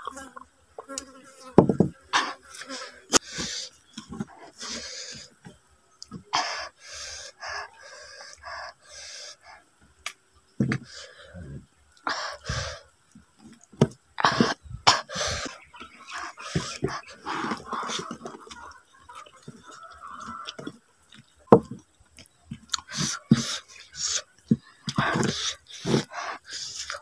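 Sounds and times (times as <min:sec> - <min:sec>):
person chewing and smacking: 0:13.1 - 0:27.0
chickens clucking: 0:14.2 - 0:27.0.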